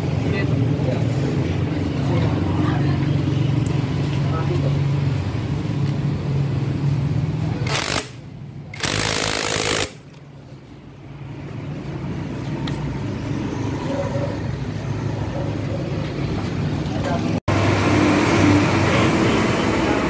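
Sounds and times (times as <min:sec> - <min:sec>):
impact wrench hammering: 0:07.6 - 0:08.2, 0:08.8 - 0:10.2.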